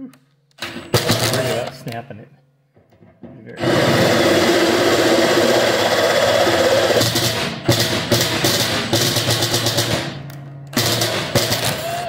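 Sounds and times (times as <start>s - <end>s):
cordless drill boring through steel: 3.6s - 7.0s.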